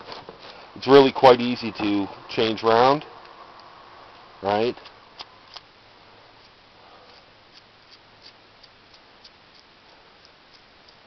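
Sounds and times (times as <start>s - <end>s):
small metallic clicks and ticks: 4.8s - 5.7s, 6.4s - 11.0s.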